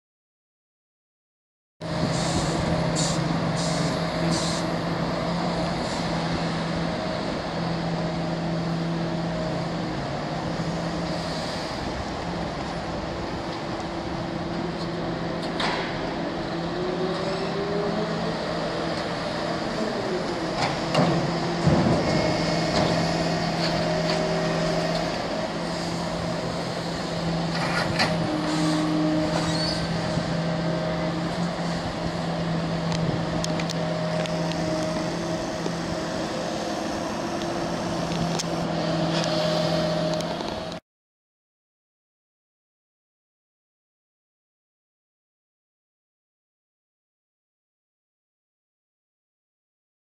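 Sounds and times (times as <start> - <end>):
diesel engines running: 1.8 - 40.8.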